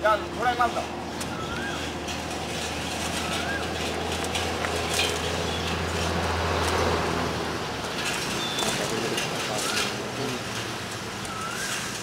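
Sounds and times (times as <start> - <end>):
outdoor noise: 0.0 - 12.0
coal lumps clattering into basket: 2.0 - 6.9.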